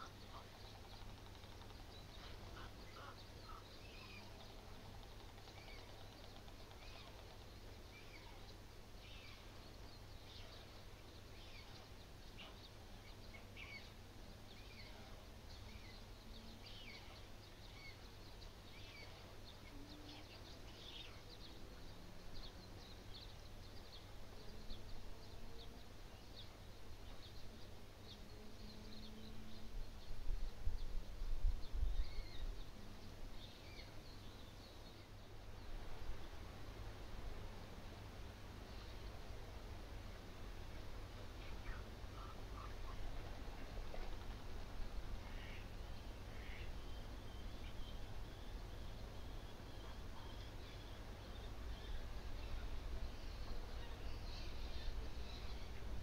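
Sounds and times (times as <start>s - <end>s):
songbirds chirping: 0.0s - 56.0s
wind rumble on microphone: 29.6s - 32.8s.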